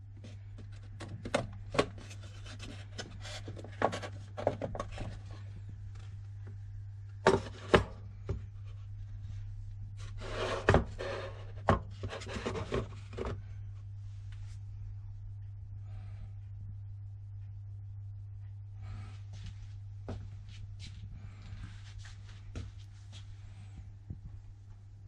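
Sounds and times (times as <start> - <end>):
steady low hum: 0.0 - 25.0
wood rubbing and sliding: 10.0 - 13.4.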